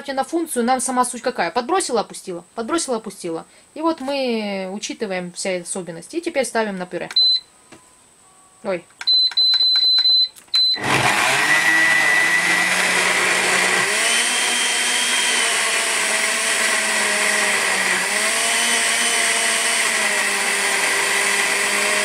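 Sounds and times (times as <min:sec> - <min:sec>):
blender motor running: 0:10.6 - 0:22.0.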